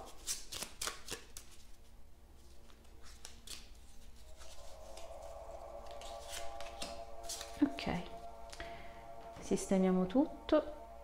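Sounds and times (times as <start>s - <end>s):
faint background music: 0.0s - 11.0s
cards clicking and snapping: 0.2s - 1.6s.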